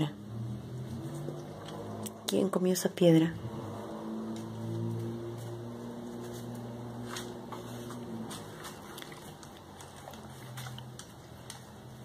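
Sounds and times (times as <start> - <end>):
dog claws clicking on tiles: 6.2 - 12.0.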